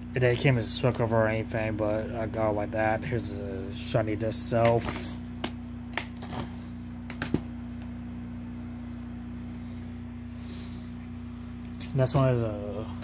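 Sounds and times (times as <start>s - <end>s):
steady low hum: 0.0s - 13.0s
plastic case clicks and knocks: 7.1s - 7.5s.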